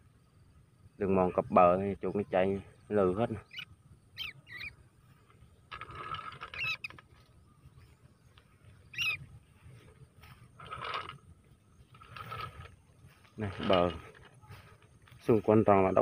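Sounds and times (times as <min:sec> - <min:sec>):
high chirps: 0:03.3 - 0:05.2, 0:06.4 - 0:07.0, 0:08.6 - 0:09.3
footsteps rustling through dry grass: 0:07.0 - 0:16.0.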